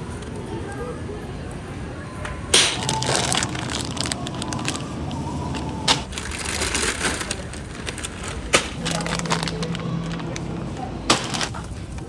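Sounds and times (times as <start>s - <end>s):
plastic packaging rustling: 2.8s - 12.0s.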